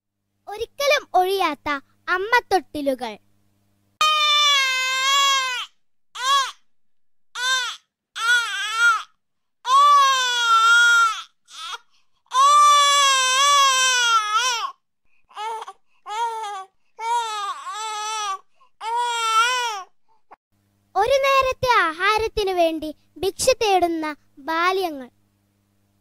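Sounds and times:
infant crying: 4.0 - 6.6, 7.4 - 19.9.

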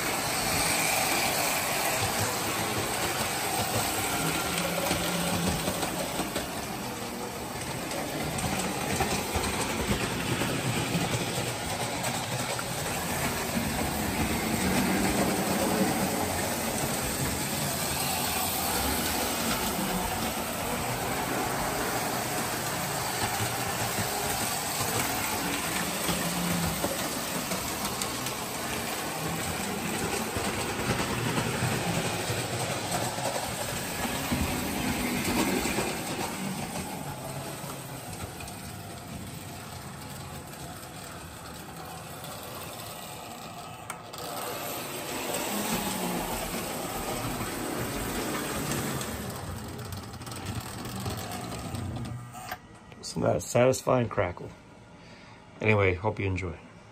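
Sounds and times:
toy trains rattling on track: 0.0 - 52.3.

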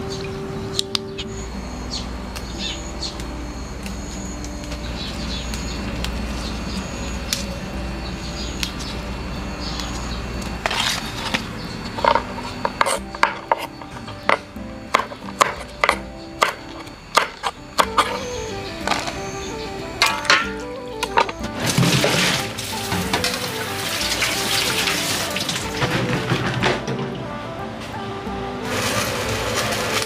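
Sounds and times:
steady low hum: 0.0 - 30.0
rustling of herb stems: 2.6 - 26.0.

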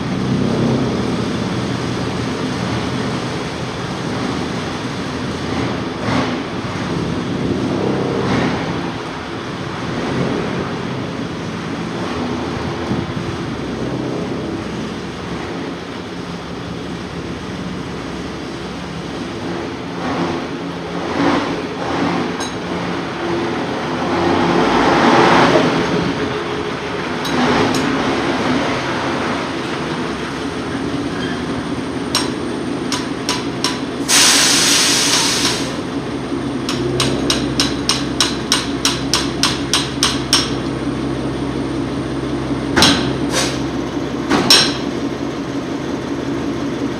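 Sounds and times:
burst of hiss: 34.0 - 35.8, 43.3 - 43.6.

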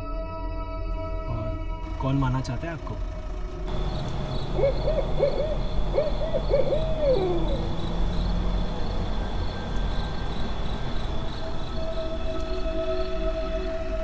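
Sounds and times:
owl hooting: 3.7 - 11.2.

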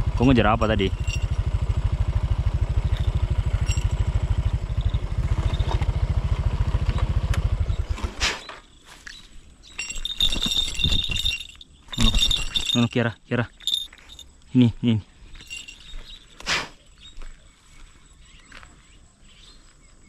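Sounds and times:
motorcycle engine running: 0.0 - 8.2
light metallic jingling: 0.1 - 1.9, 2.7 - 6.5, 8.6 - 19.5.

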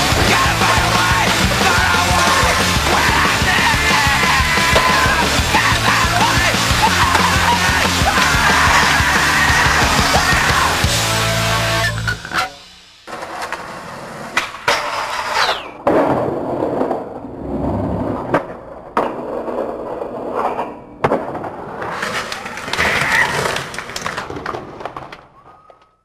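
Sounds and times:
skateboard wheels rolling: 0.0 - 10.9, 13.1 - 25.9
skateboard clacking on ground: 18.3 - 26.0.

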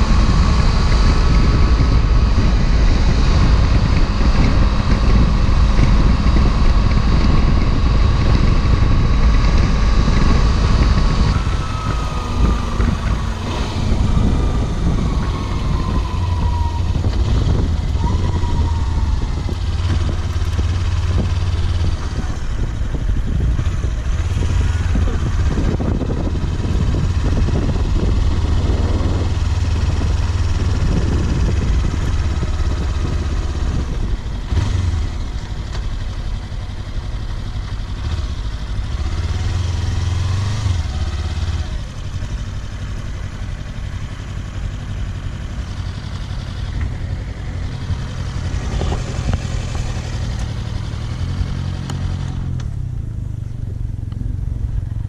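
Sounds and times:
motorcycle engine running: 0.0 - 55.0
wind noise: 0.0 - 55.0.

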